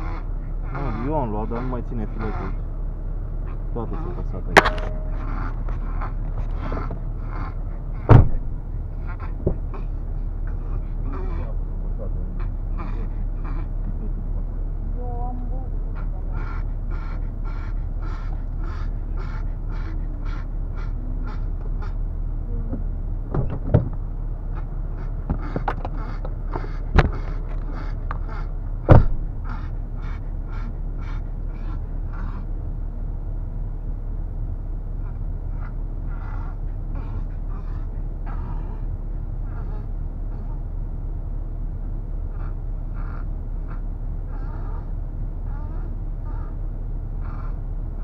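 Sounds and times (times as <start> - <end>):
car engine low rumble: 0.0 - 48.0
sharp knocks: 4.6 - 5.5, 28.9 - 29.3.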